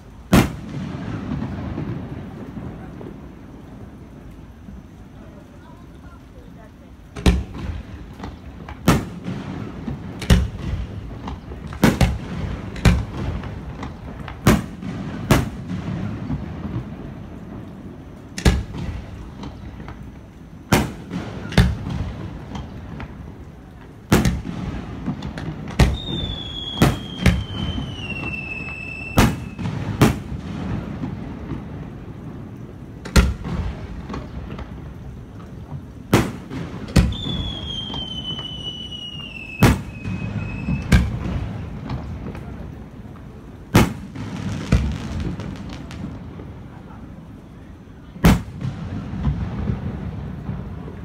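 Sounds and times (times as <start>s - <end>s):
firework shells bursting: 7.1s - 32.0s, 32.6s - 42.6s, 43.7s - 46.5s
falling firework whistle: 25.7s - 30.2s, 36.2s - 41.4s.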